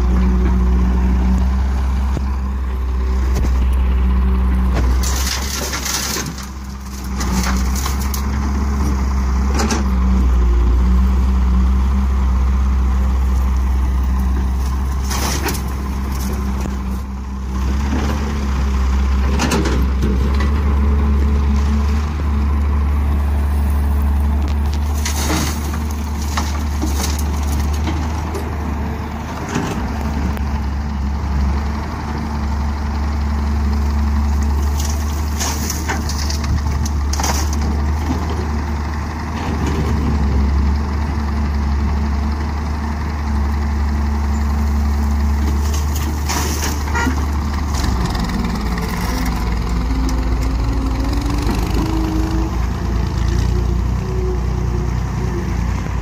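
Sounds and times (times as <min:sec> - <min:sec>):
diesel engines running: 0:00.0 - 0:56.0
soil and stones clattering into trolley: 0:04.7 - 0:08.4, 0:14.9 - 0:16.6, 0:24.5 - 0:28.1, 0:34.6 - 0:38.4, 0:45.4 - 0:48.3.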